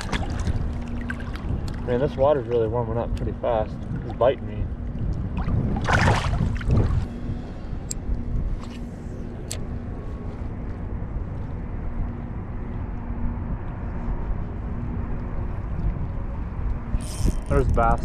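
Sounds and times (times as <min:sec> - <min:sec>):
water splash: 0:00.0 - 0:01.9, 0:05.3 - 0:07.1
wind on microphone: 0:00.0 - 0:18.0.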